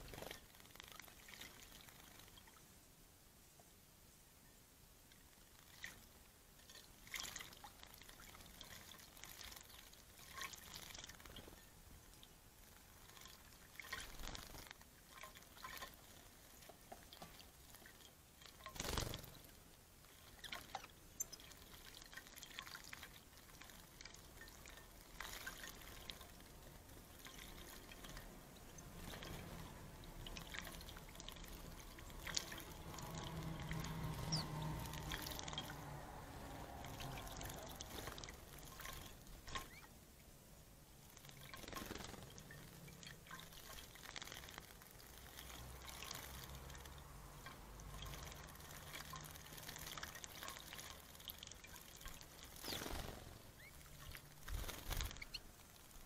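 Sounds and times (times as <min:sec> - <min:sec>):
birds splashing in water: 0:00.0 - 0:02.6, 0:05.5 - 0:40.0, 0:41.0 - 0:56.0.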